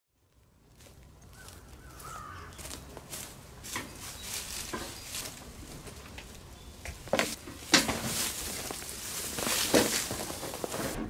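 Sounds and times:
footsteps on wood chips: 0.2s - 11.0s
go-kart handling knocks: 6.9s - 8.7s.

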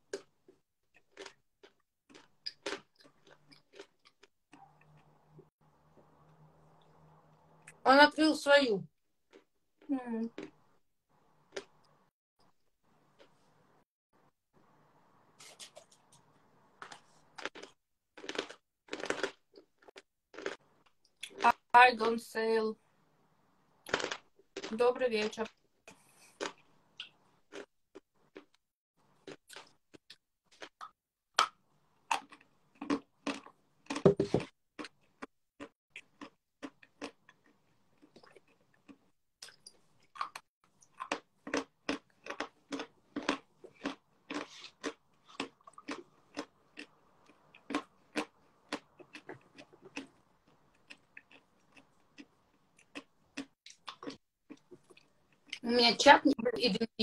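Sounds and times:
person chewing crunchy food: 0.0s - 7.0s, 11.3s - 12.0s, 15.4s - 21.5s, 23.8s - 24.8s, 25.8s - 55.6s.

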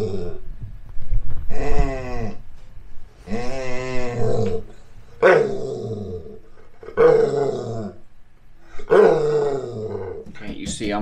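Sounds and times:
dog moaning calls: 0.0s - 0.5s, 1.5s - 2.5s, 3.2s - 10.2s.

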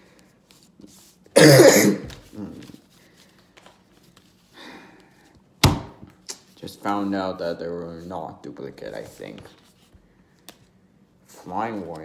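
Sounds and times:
person coughing: 1.4s - 2.6s.

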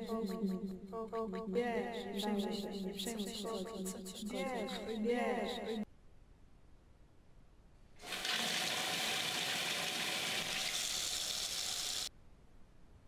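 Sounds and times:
tap water running into sink: 8.0s - 12.1s.

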